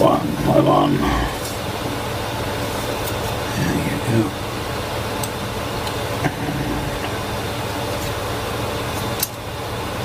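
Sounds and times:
fan-like hum and hiss: 0.0s - 10.0s.

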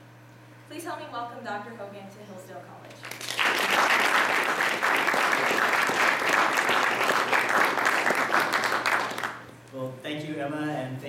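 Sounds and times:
audience applauding: 3.0s - 9.5s.

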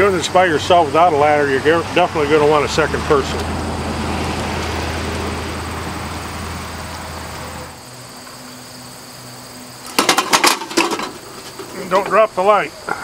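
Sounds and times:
insect trill: 0.0s - 13.0s
metal fixture clacking: 9.9s - 12.2s.

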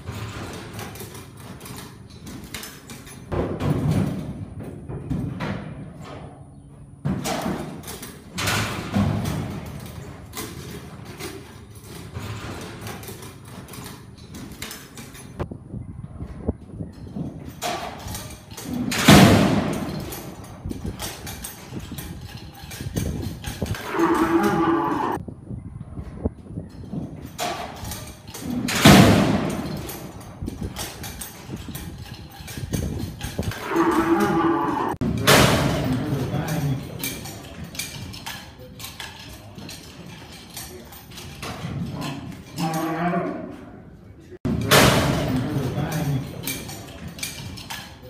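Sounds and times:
hooves thudding on dirt: 0.0s - 47.7s
arena background noise: 0.0s - 48.0s
bull bellowing: 23.7s - 25.2s, 33.5s - 35.0s, 41.8s - 43.8s.

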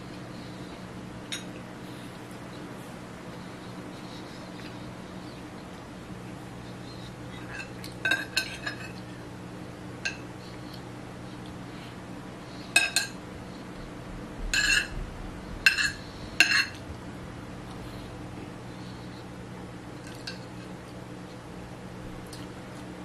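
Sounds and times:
utensil scraping a plate: 7.3s - 9.1s, 14.5s - 15.0s, 15.6s - 16.8s
metal utensil clinking on plate: 14.6s - 14.9s.

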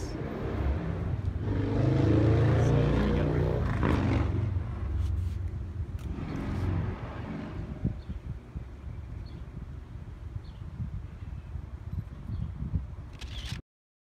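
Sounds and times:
car engine passing by: 0.0s - 5.4s, 6.0s - 7.9s.

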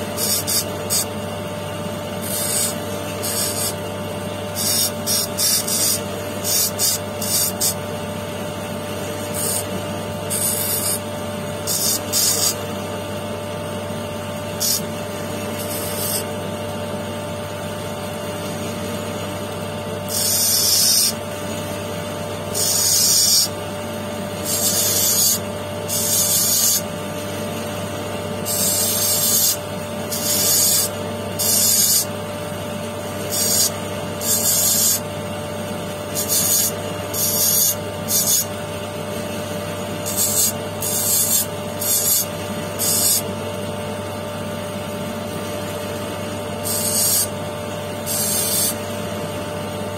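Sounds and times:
stone hissing on grinding wheel: 0.0s - 1.3s, 2.2s - 3.8s, 4.4s - 7.9s, 9.1s - 12.7s, 14.5s - 16.3s, 20.1s - 21.2s, 22.5s - 23.6s, 24.3s - 27.0s, 28.4s - 32.1s, 33.2s - 35.1s, 35.9s - 38.6s, 39.8s - 43.2s, 46.6s - 47.4s, 48.0s - 49.0s
electric motor humming: 0.0s - 17.1s, 17.8s - 43.8s, 44.8s - 49.9s.

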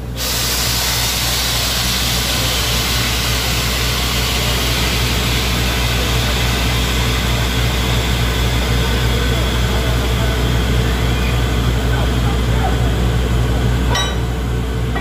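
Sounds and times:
drilling rig engine drone: 0.1s - 15.0s
compressed air hissing: 0.2s - 9.0s.

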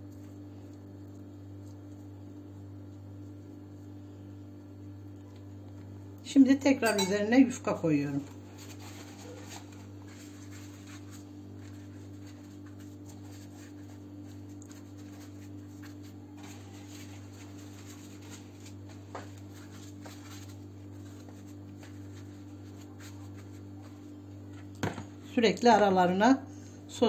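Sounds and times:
steady low hum: 0.0s - 27.0s
pastry sheet rustling: 7.2s - 24.7s.

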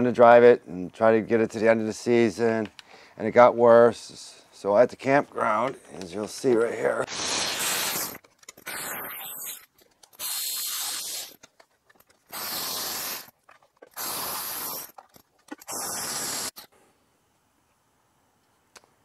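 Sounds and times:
hissing bursts: 7.0s - 11.5s, 12.2s - 16.7s.

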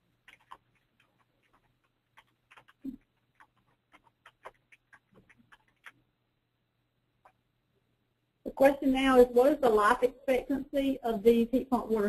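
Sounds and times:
faint clicks and taps: 0.2s - 6.1s.

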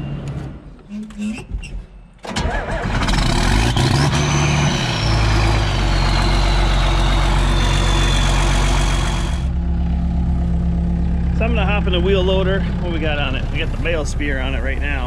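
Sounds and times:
high whistle: 3.7s - 9.5s
diesel tractor engine idling: 5.0s - 15.0s.

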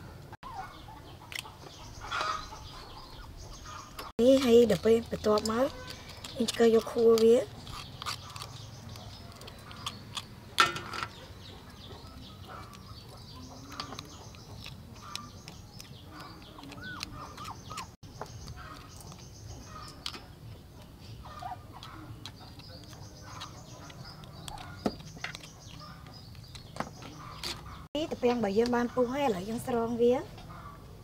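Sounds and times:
chickens clucking: 0.0s - 4.1s, 10.6s - 27.9s
metal spoon scraping snail shells: 4.0s - 11.2s, 11.8s - 27.8s.

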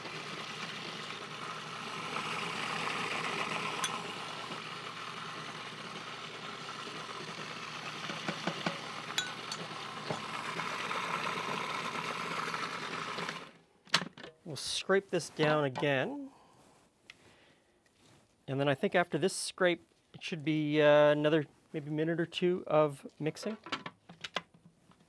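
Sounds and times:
food processor motor running: 0.0s - 13.6s
metal spoon clinking on glass: 3.8s - 4.0s, 9.2s - 9.8s.

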